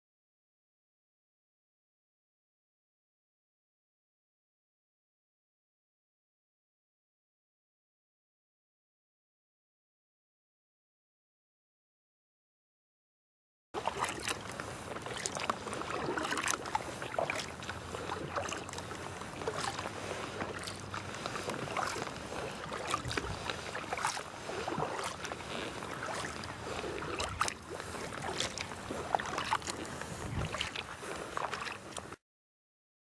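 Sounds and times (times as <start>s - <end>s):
kayak paddle splashes: 13.8s - 32.2s
water washing along hull: 13.8s - 32.2s.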